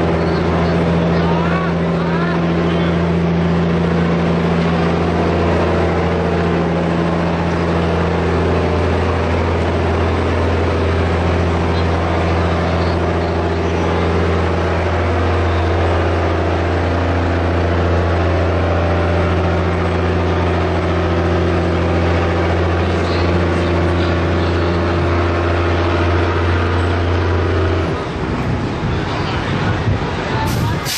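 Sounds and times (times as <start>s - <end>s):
tracked vehicle engine running: 0.0s - 30.9s.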